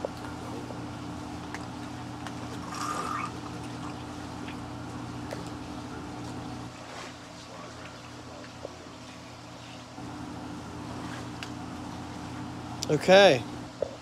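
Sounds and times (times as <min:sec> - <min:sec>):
steady low hum: 0:00.0 - 0:14.0
drink slurped through a straw: 0:02.6 - 0:03.4.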